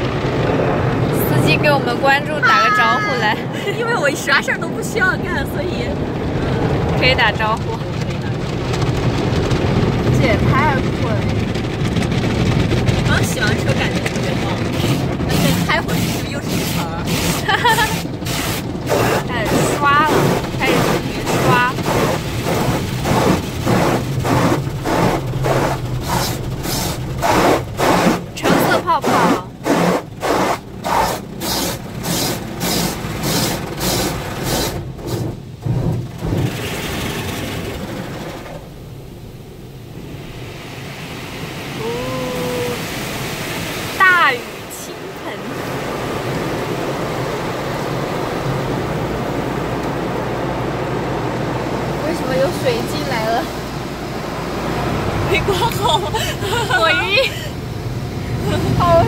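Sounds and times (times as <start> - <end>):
low hum of wash machinery: 0.0 - 59.0
water spray: 13.2 - 35.4.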